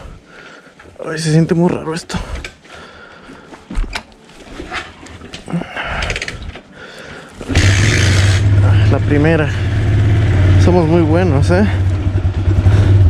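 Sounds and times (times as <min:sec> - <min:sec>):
motorcycle engine turning over: 0:07.4 - 0:13.0
motorcycle engine running: 0:07.5 - 0:13.0.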